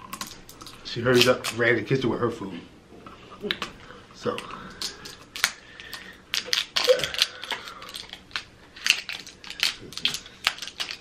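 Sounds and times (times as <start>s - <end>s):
plastic wrapper crinkling and tearing: 0.0s - 1.7s, 4.3s - 11.0s.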